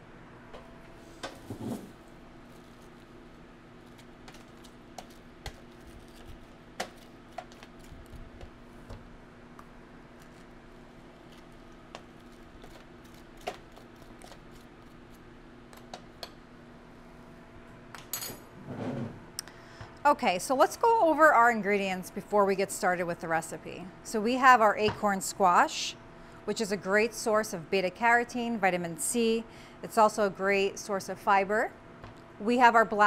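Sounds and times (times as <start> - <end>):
faint steady hum: 0.0 - 33.0
spoon scraping squash seeds: 3.8 - 7.9.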